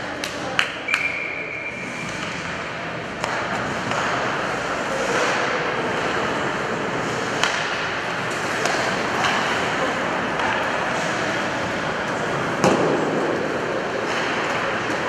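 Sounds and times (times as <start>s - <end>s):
hockey sticks hitting puck: 0.0s - 15.0s
skates scraping ice: 1.7s - 15.0s.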